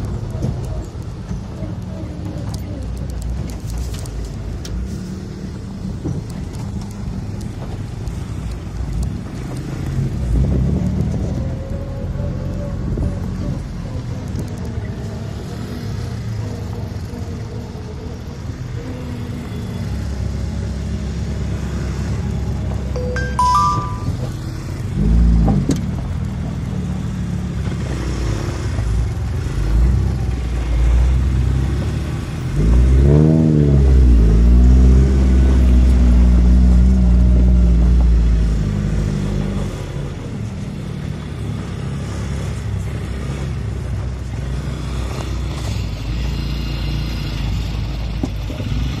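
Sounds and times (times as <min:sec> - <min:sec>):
quad bike engines revving: 0:24.5 - 0:49.0.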